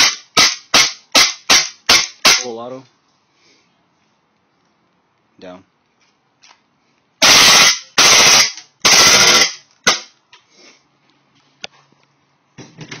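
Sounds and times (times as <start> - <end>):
airsoft pistol firing: 0.0 - 2.5, 7.2 - 10.1.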